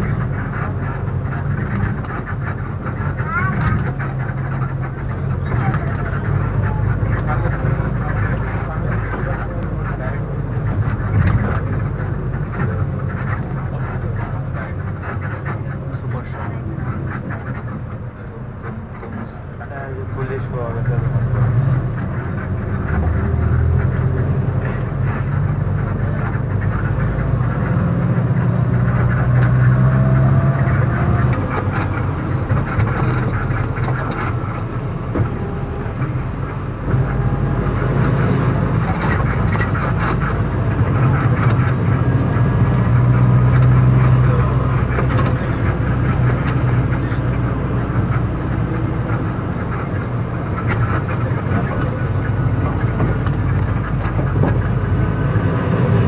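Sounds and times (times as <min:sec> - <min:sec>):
road noise: 0:00.0 - 0:56.0
vehicle engine drone: 0:00.0 - 0:56.0.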